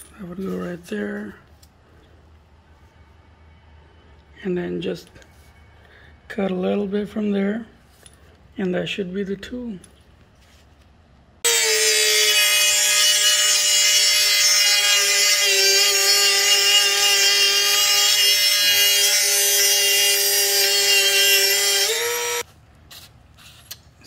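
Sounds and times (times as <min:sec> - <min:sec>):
rotary tool cutting metal pipe: 0:11.4 - 0:22.5.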